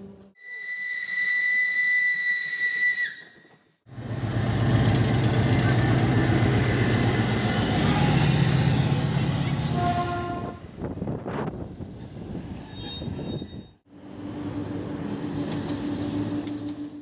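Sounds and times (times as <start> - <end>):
steam locomotive whistle: 0.4 - 3.4, 9.8 - 10.6
diesel locomotive engine running: 3.9 - 11.0.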